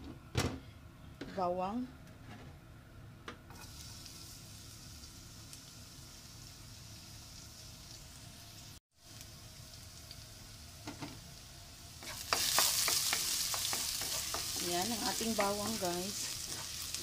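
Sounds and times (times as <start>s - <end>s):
garlic sizzling in oil: 3.5s - 17.0s.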